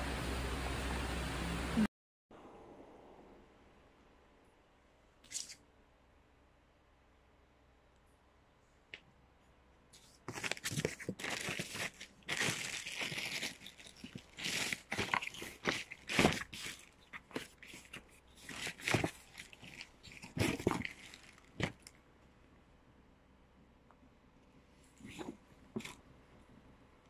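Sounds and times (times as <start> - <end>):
cardboard and plastic bag rustling: 10.2 - 21.9.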